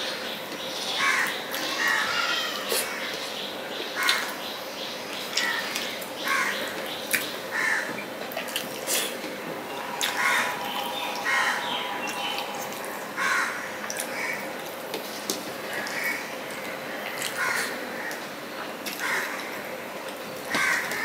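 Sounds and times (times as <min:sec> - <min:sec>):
crows cawing: 0:05.4 - 0:06.8, 0:07.5 - 0:08.0, 0:09.7 - 0:14.6, 0:15.6 - 0:18.3, 0:19.0 - 0:19.6, 0:20.5 - 0:21.0.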